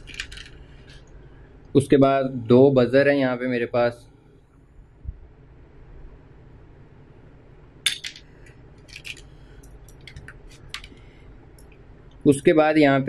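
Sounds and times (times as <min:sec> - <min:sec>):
small hard parts clicking: 0:00.0 - 0:00.6, 0:07.9 - 0:11.0.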